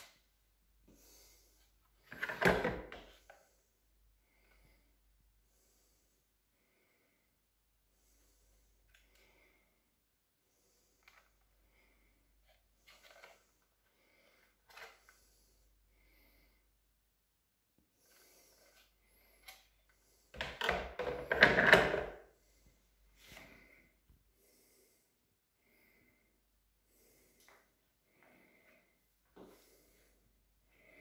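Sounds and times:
plastic clattering and scraping: 2.1s - 3.2s, 20.4s - 22.2s.

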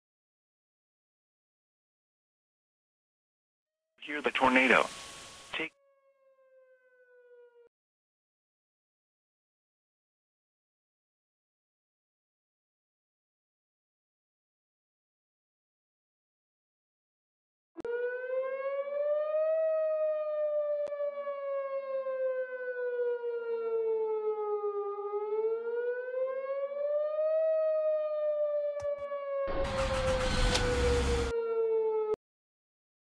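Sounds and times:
warning siren wailing: 5.8s - 7.7s, 17.8s - 32.2s.

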